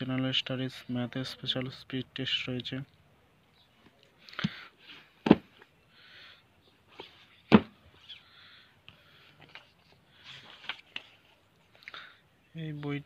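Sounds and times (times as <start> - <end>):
book pages rustling: 9.2 - 11.8.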